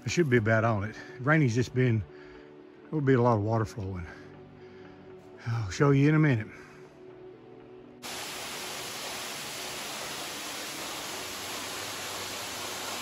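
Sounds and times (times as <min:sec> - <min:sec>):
waterfall rushing hiss: 0:08.0 - 0:13.0.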